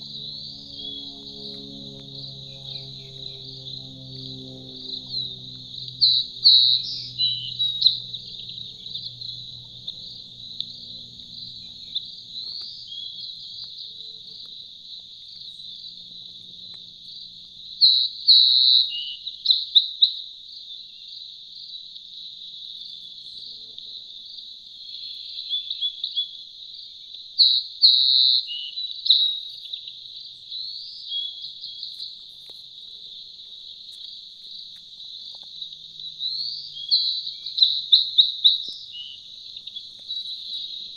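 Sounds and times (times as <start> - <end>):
insects shrilling: 0.0 - 14.7
bird chirps and gliding calls: 0.0 - 16.4, 17.8 - 19.8, 35.5 - 40.9.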